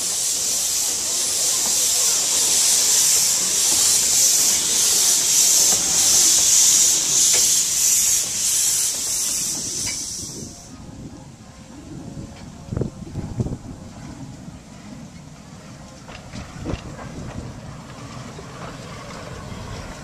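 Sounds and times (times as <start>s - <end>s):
pulsing steam hiss: 0.0s - 11.0s
steam locomotive pulling away: 0.0s - 20.0s.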